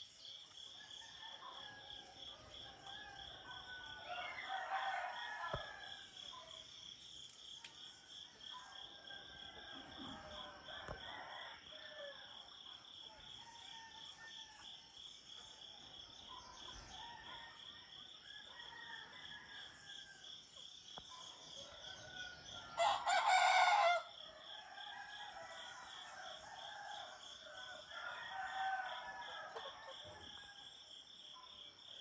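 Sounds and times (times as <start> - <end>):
crickets chirping: 0.0 - 32.0
distant roosters crowing: 0.7 - 6.2, 21.6 - 30.6
rooster crowing: 2.7 - 6.1, 9.0 - 12.2, 21.6 - 30.4.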